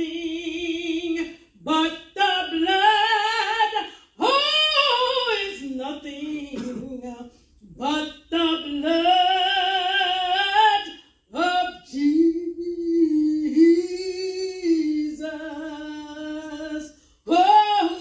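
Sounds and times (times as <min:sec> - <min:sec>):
woman singing a hymn: 0:00.0 - 0:18.0
woman breathing in: 0:16.9 - 0:17.3.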